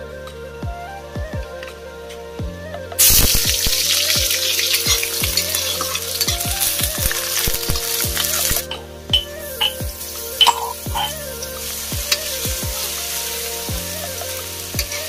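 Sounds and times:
onions sizzling in hot oil: 0:03.0 - 0:08.7, 0:09.5 - 0:15.0.

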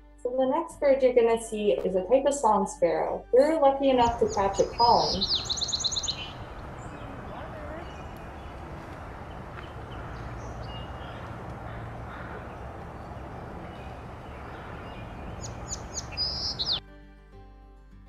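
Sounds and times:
sparrow singing: 0:03.9 - 0:16.8.

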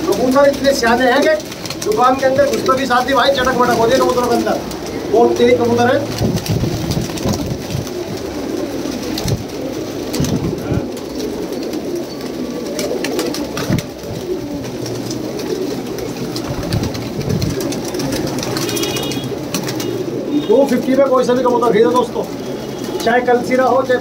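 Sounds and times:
pigeons cooing: 0:00.0 - 0:24.0.

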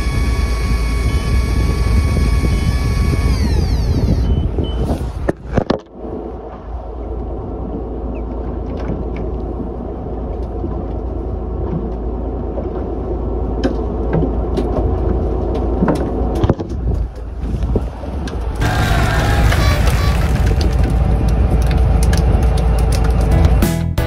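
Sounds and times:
boat engine humming: 0:00.0 - 0:23.6.

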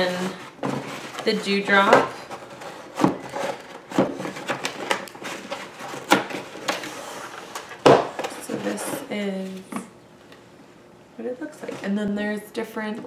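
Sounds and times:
paper pulp scraping and rustling: 0:00.0 - 0:09.7.

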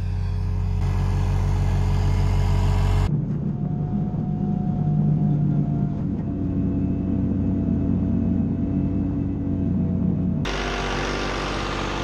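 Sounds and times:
tractor diesel engine running: 0:00.0 - 0:03.2, 0:06.2 - 0:12.0.

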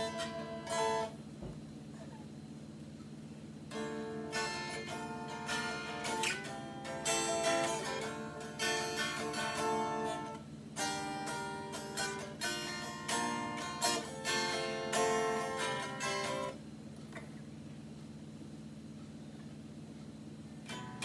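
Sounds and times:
electric guitar chords strummed: 0:00.0 - 0:01.3, 0:03.7 - 0:16.6, 0:20.6 - 0:21.0.

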